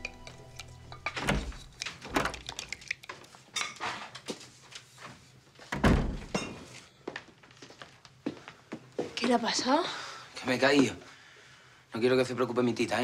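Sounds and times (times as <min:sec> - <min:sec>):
footsteps on hard floor: 0:07.0 - 0:09.5.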